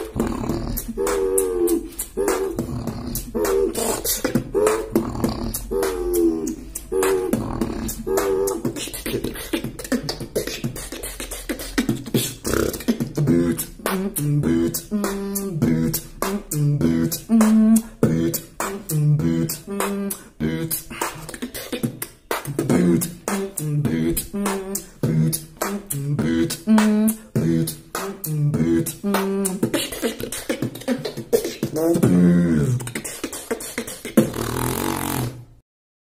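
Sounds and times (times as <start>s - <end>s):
hummed bass notes: 0.0s - 11.2s, 12.0s - 21.2s, 22.4s - 29.8s
beatboxing: 0.0s - 35.6s.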